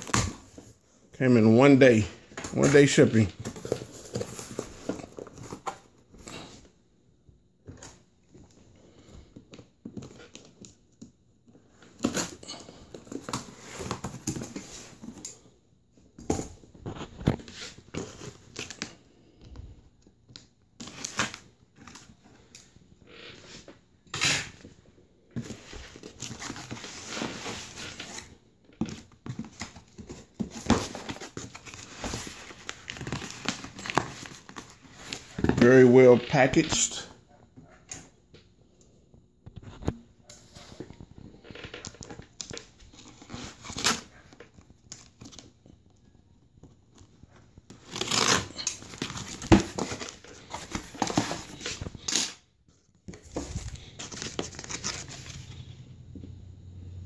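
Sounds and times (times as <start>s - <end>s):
cardboard flaps rustling: 47.4s - 52.2s, 53.0s - 55.8s
tape tearing: 47.7s - 52.4s
scissors cutting packing tape: 47.8s - 49.5s.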